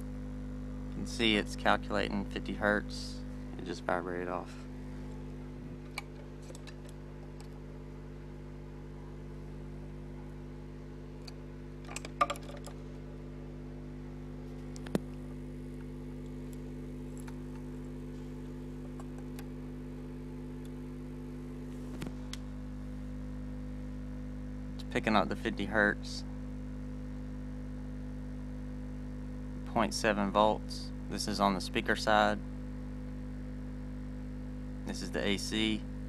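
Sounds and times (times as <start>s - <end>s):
subwoofer low test tone hum: 0.0s - 36.0s.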